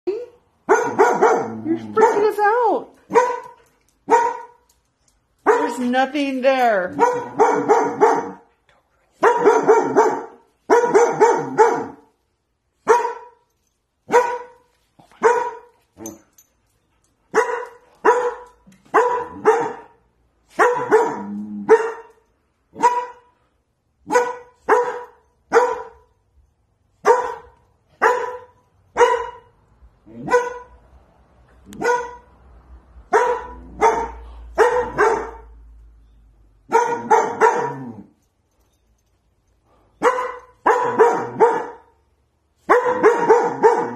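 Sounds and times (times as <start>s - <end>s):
puppy barking: 0.7s - 4.6s, 5.4s - 5.8s, 6.9s - 8.5s, 9.2s - 12.1s, 12.8s - 13.4s, 14.1s - 14.6s, 15.2s - 15.7s, 17.3s - 23.3s, 24.1s - 26.1s, 27.0s - 29.5s, 30.2s - 30.8s, 31.7s - 32.3s, 33.1s - 35.6s, 36.7s - 37.9s, 40.0s - 41.9s, 42.7s - 43.9s.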